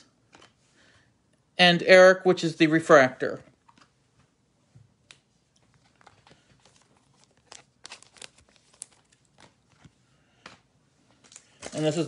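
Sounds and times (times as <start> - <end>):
faint foil wrapper crinkling: 5.5 - 12.0.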